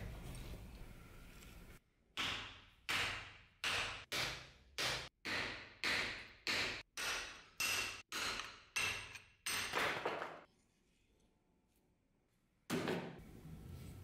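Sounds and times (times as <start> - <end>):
hammer striking metal: 2.2 - 9.9.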